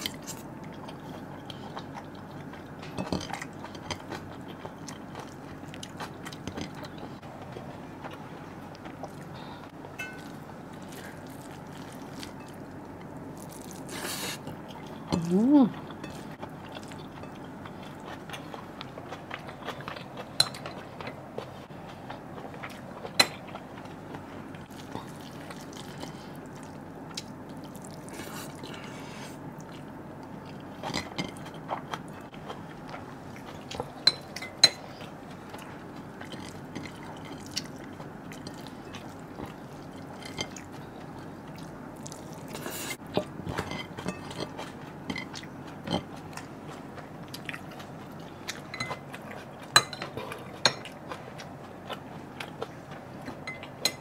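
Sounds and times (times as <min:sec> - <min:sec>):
person chewing food: 0:00.0 - 0:54.0
metal spoon clinking on plate: 0:10.0 - 0:10.3.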